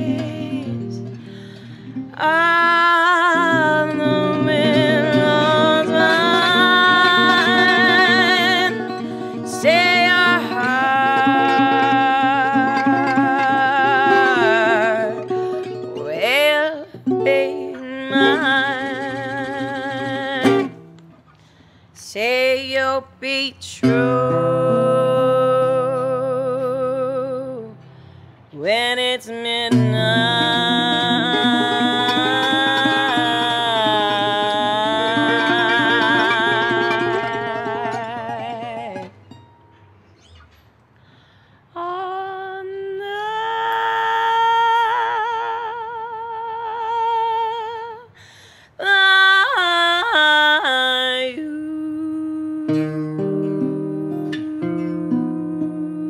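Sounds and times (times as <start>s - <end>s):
woman singing with vibrato: 0.0s - 21.0s, 22.0s - 27.9s, 28.5s - 39.5s, 41.6s - 56.0s
plucked guitar: 0.0s - 21.7s, 23.7s - 41.0s, 51.6s - 56.0s.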